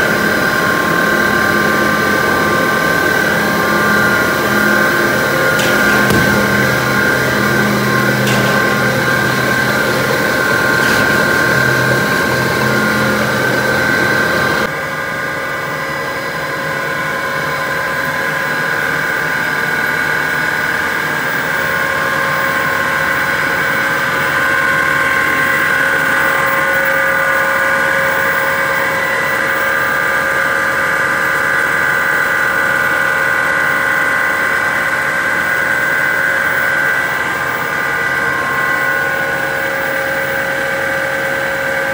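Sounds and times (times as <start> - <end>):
steady machine whining tones: 0.0 - 14.9
loud machinery drone: 0.0 - 16.5.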